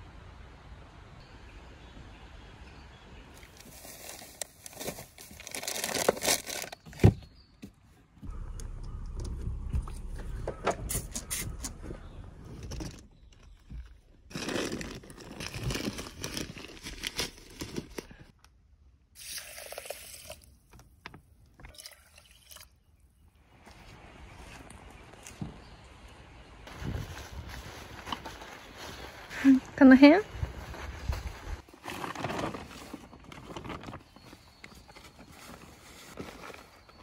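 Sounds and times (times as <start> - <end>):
bedding and plastic bags rustling: 3.4 - 7.4, 10.3 - 18.3, 26.7 - 37.0
knocks and clicks: 8.2 - 13.1.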